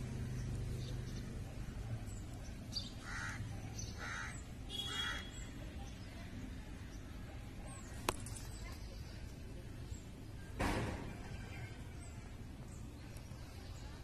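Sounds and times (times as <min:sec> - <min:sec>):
crow cawing: 0:03.0 - 0:03.4, 0:04.0 - 0:05.3.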